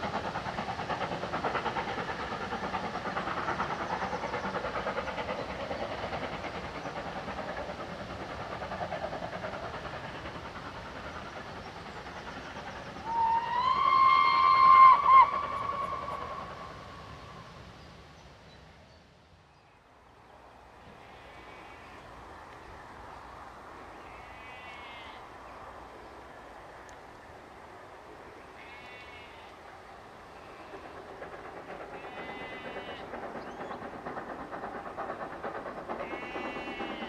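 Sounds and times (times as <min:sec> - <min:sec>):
distant train running: 0:00.0 - 0:37.0
steam locomotive whistle: 0:13.0 - 0:17.1.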